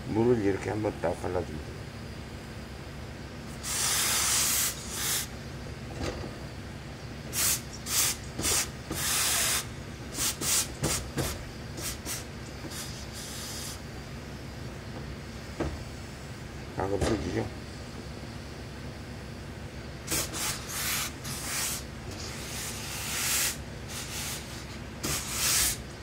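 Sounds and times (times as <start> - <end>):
steam iron hissing: 3.5 - 5.3, 7.3 - 13.9, 20.1 - 25.9.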